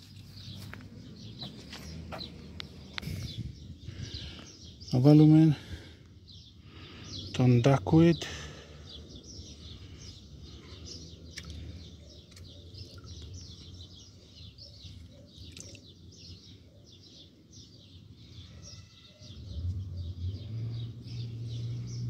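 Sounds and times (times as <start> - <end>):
small birds chirping: 0.0 - 22.0
water dripping and splashing: 15.5 - 15.8.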